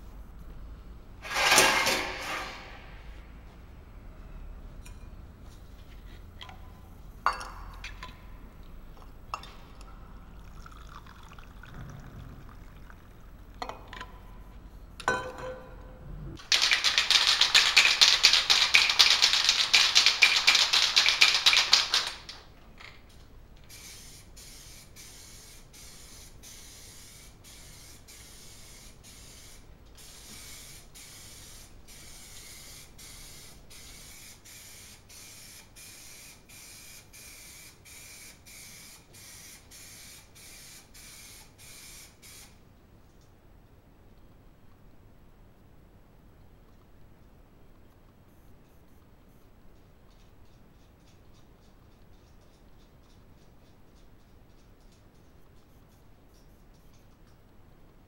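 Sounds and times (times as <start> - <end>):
spray paint can hissing: 16.4 - 22.2, 23.7 - 42.6.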